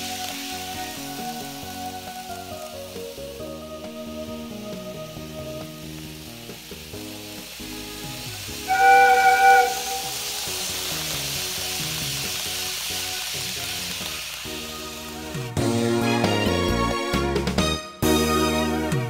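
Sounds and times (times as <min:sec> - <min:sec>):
model train rolling hiss: 0:00.0 - 0:18.8
background music: 0:00.0 - 0:19.0
loud horn-like tone: 0:08.7 - 0:10.6.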